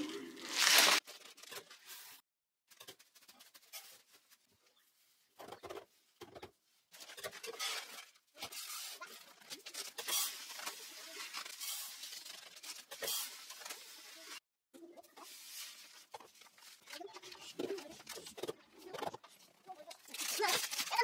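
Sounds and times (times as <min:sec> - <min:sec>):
plastic bags crinkling: 0:00.1 - 0:01.0, 0:20.0 - 0:21.0
dry beans pouring into canister: 0:00.4 - 0:01.0.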